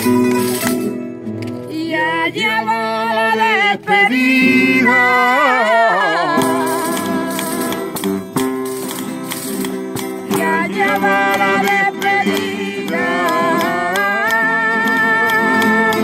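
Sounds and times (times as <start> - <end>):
acoustic guitar strumming chords: 0.0 - 16.0
person singing: 1.6 - 8.2, 10.3 - 16.0.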